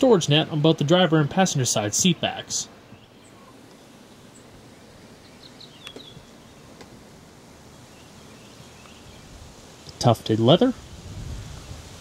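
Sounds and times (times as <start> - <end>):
faint high bird chirps: 5.2 - 6.8
light clicks: 5.8 - 6.1.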